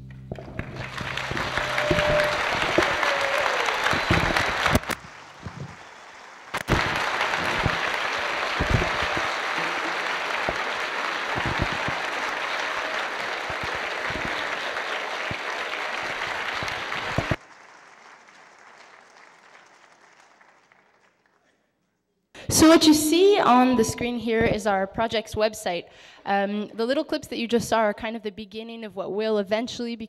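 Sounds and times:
audience applauding: 0.0 - 21.6.

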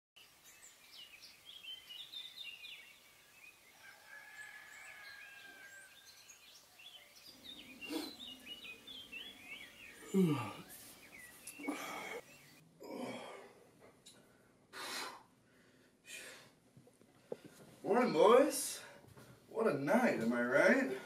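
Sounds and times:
small birds chirping: 0.2 - 12.6
man yawning loudly: 10.0 - 10.7, 12.8 - 13.5.

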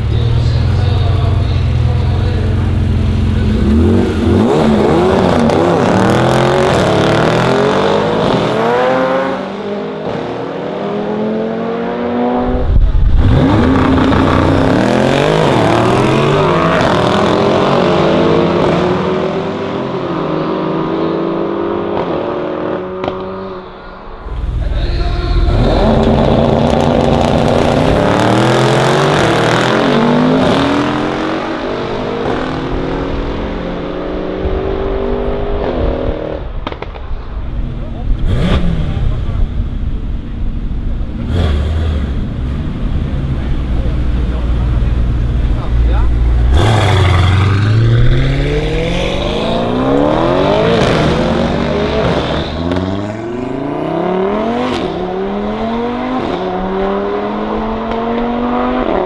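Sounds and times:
car engine accelerating hard: 0.0 - 23.5, 24.2 - 59.0.

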